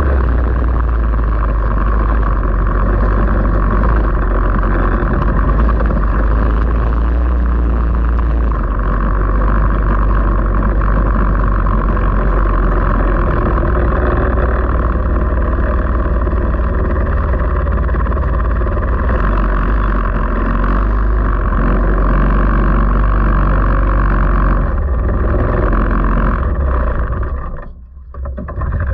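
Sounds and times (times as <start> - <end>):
racing engine running: 0.0 - 28.9.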